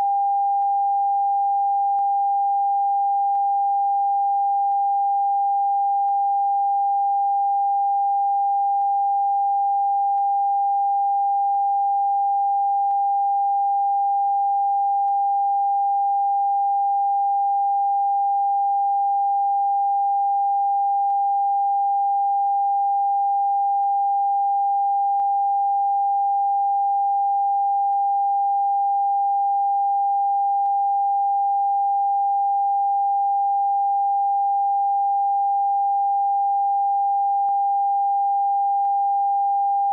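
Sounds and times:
steady sine test tone: 0.0 - 39.9.

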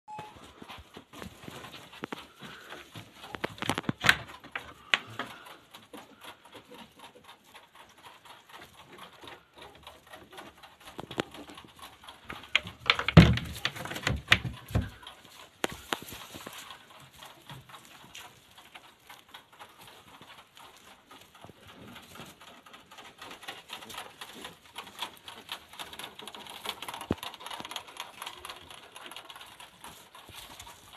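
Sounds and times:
rabbits scrabbling on straw: 0.3 - 30.9
thumps: 12.3 - 16.5.

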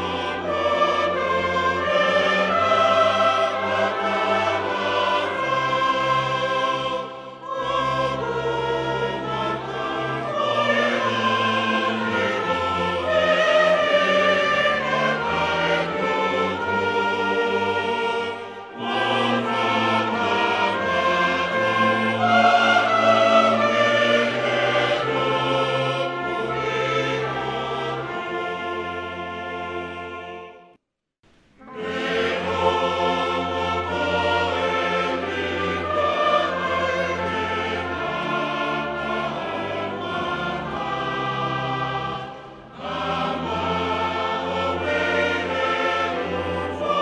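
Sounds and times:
choir singing held notes: 0.0 - 30.5, 31.6 - 47.0
orchestral accompaniment: 0.0 - 30.6, 31.6 - 47.0.

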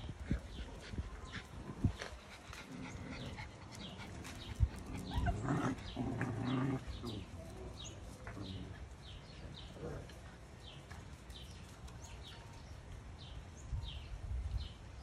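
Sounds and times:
puppies vocalizing while playing: 0.2 - 10.8.

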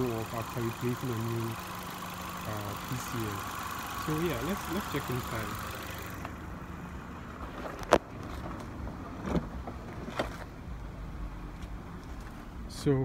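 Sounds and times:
car engine idling: 0.0 - 9.3.

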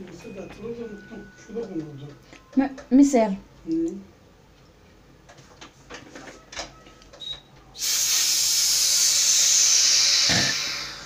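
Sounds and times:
loud steady hiss: 7.8 - 11.0.

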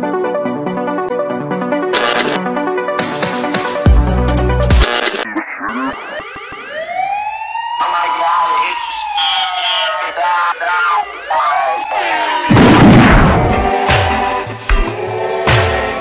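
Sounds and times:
loud music: 1.9 - 6.9, 11.5 - 16.0
siren wailing: 5.2 - 13.9.

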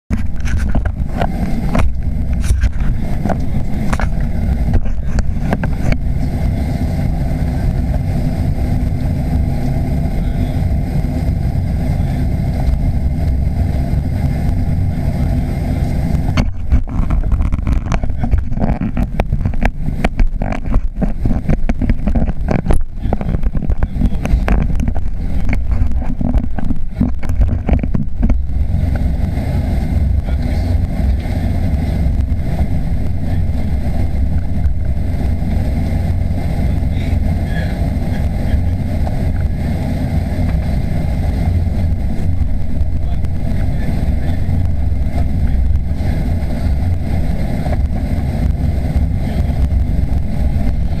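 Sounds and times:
aircraft engines taxiing: 0.1 - 51.0
knocks and rattles in cabin: 16.3 - 29.1.

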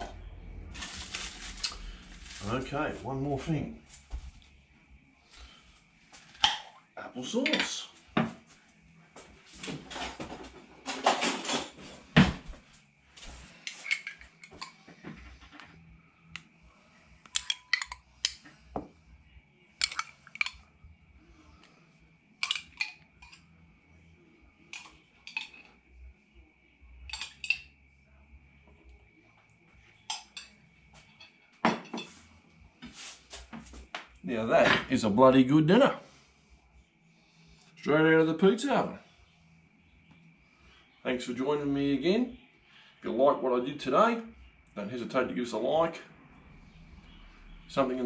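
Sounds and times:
jar clattering: 17.3 - 18.4, 19.8 - 20.6, 22.4 - 23.4
utensil clinking against glass jar: 17.3 - 18.4, 19.8 - 20.6.

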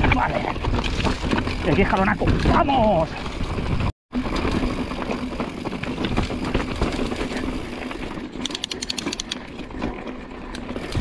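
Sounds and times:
bike frame rattling: 0.0 - 11.0
bike tyres rumbling on trail: 0.0 - 11.0
rapid sharp ticks: 8.4 - 9.4.

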